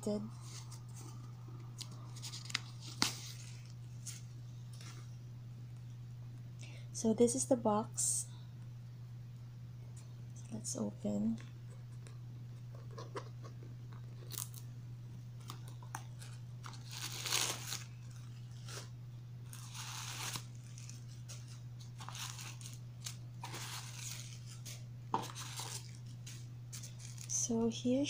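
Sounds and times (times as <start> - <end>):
steady low hum: 0.0 - 28.0
tissue paper rustling: 2.1 - 5.1, 16.2 - 18.9, 19.5 - 27.4.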